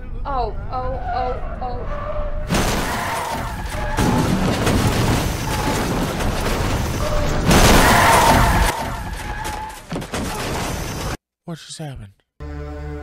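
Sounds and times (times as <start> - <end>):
loud rumbling noise: 2.5 - 9.4
crashing boom: 2.5 - 11.2.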